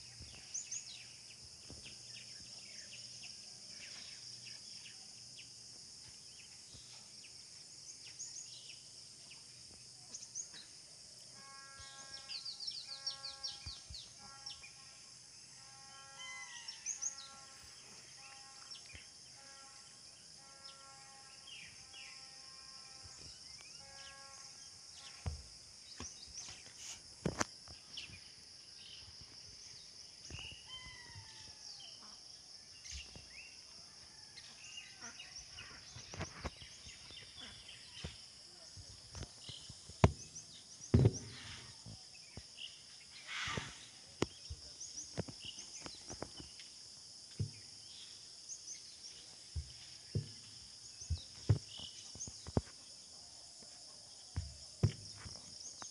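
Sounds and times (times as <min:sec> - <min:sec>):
high insect drone: 0:00.0 - 0:55.9
sharp knocks: 0:40.0 - 0:40.3, 0:40.9 - 0:41.6, 0:54.4 - 0:55.3.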